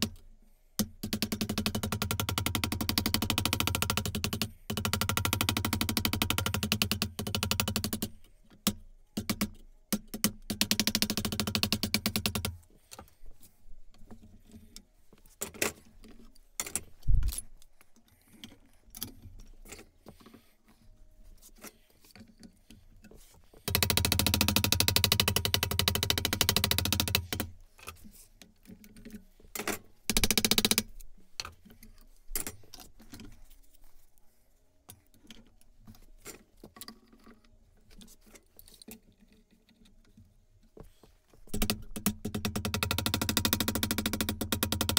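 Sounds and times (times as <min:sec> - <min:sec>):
rapid tapping on metal: 0:00.8 - 0:12.6, 0:23.7 - 0:27.6, 0:30.1 - 0:30.9, 0:41.5 - 0:44.9.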